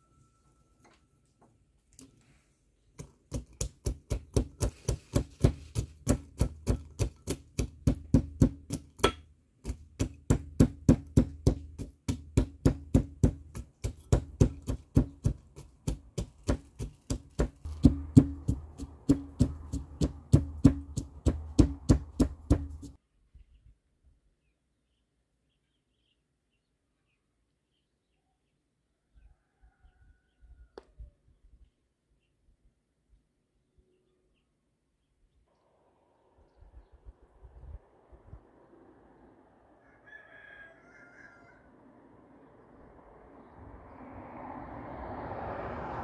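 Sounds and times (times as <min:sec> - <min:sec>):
pestle pounding in brass mortar: 0:03.3 - 0:23.0.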